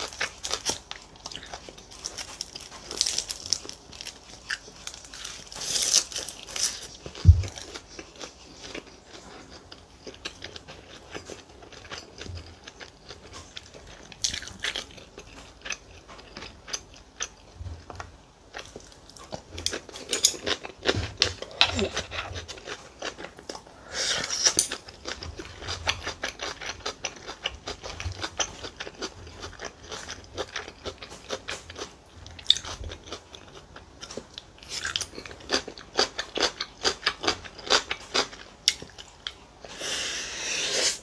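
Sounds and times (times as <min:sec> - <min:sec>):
crunchy chewing: 0:00.0 - 0:41.0
dull low thump: 0:07.2 - 0:07.6.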